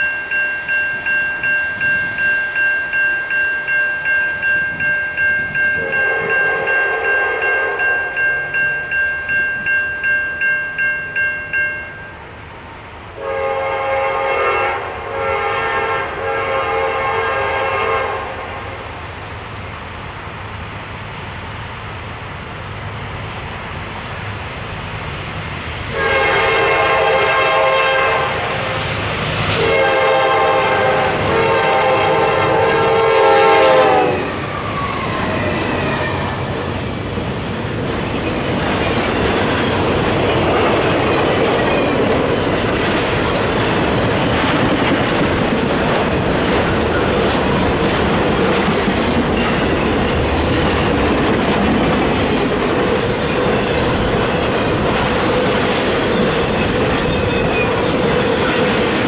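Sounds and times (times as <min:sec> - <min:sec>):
locomotive air horn blasts: 0:05.8 - 0:08.1, 0:13.2 - 0:18.8, 0:25.9 - 0:28.8, 0:29.5 - 0:34.5
train wheel clatter and rumble: 0:28.6 - 0:59.0.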